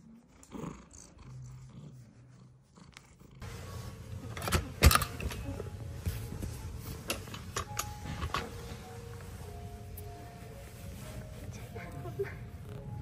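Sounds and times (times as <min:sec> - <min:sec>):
kitten purring: 0:00.0 - 0:03.5.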